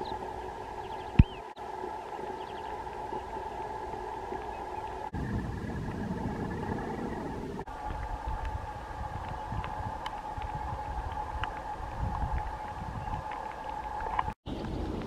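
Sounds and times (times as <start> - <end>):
low hum: 0.0 - 15.0
rough low rumble: 0.0 - 15.0.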